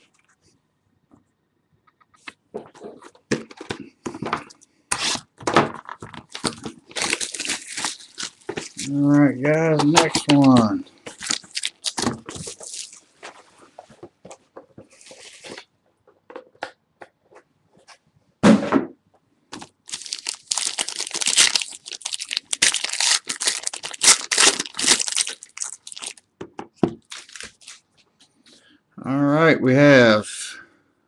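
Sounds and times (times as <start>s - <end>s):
wrapper crinkling: 5.8s - 13.1s, 19.6s - 26.2s, 27.0s - 27.9s
foil pack tearing: 6.3s - 9.1s, 9.7s - 13.0s, 19.6s - 26.2s, 27.1s - 27.8s.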